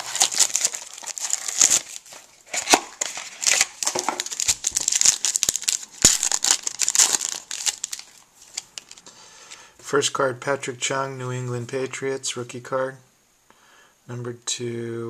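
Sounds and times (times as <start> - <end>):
foil wrapper crackling: 0.0 - 9.0.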